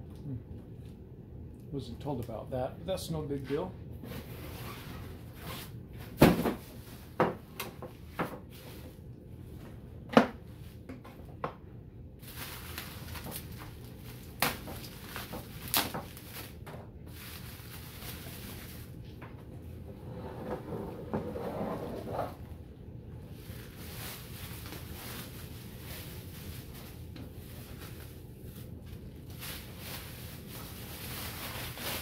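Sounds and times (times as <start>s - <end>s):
bubble wrap crinkling: 12.2s - 19.1s, 23.3s - 32.0s.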